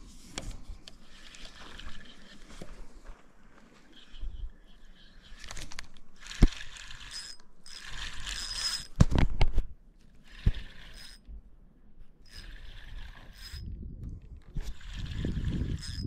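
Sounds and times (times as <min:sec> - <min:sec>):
fishing reel gears whirring: 0:01.0 - 0:02.5, 0:03.9 - 0:09.0, 0:10.2 - 0:11.3, 0:12.2 - 0:16.0.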